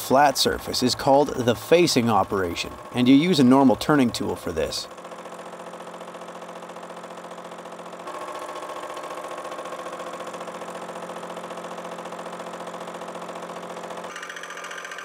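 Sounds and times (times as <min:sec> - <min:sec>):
milling machine cutting steel: 0:00.0 - 0:15.0.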